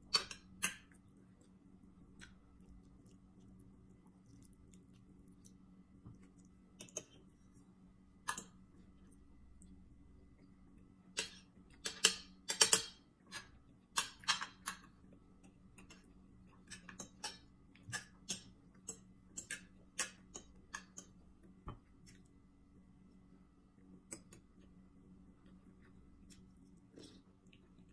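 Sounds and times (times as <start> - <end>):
chewing and mouth clicks: 0.9 - 7.2.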